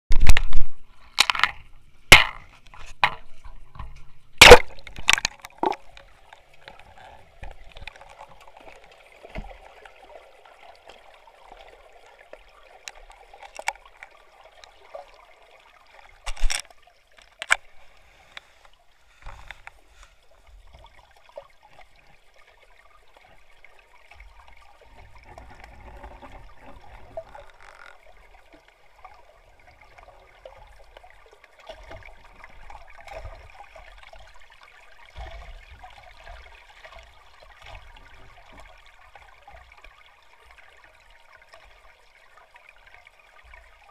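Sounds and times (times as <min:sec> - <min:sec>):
camera splashing into water: 0:00.1 - 0:01.5, 0:04.4 - 0:05.9, 0:16.2 - 0:16.7.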